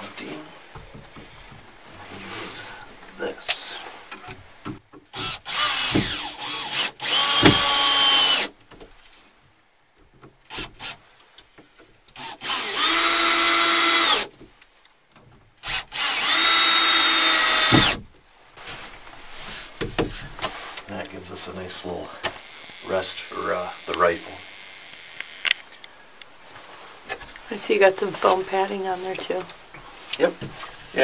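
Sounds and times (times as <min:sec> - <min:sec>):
cordless drill whine: 0:05.1 - 0:08.5, 0:12.2 - 0:14.3, 0:15.6 - 0:18.0, 0:22.2 - 0:25.6.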